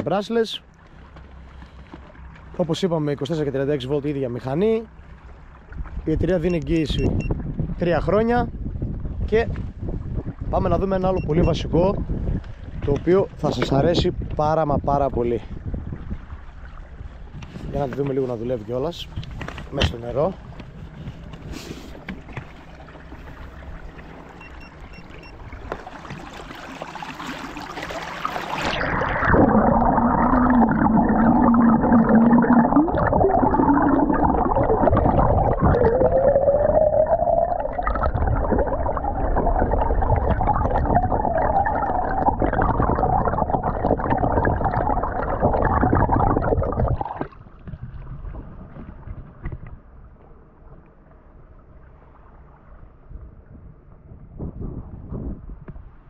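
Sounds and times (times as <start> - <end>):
underwater motor hum and whine: 0.0 - 13.8, 15.6 - 56.0
rush of water: 9.2 - 49.2.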